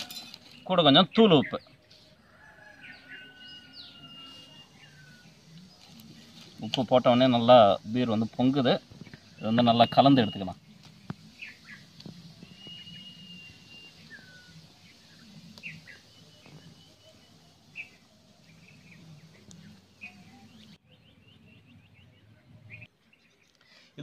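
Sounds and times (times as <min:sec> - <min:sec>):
birds chirping: 0:00.0 - 0:24.0
whistled bird note: 0:12.4 - 0:14.6.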